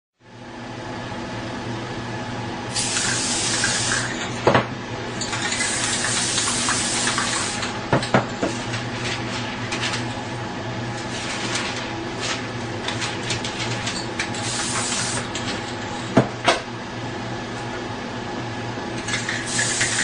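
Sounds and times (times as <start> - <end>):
spray-paint can hissing: 2.8 - 4.1, 5.5 - 7.7, 14.4 - 15.2, 19.3 - 20.0.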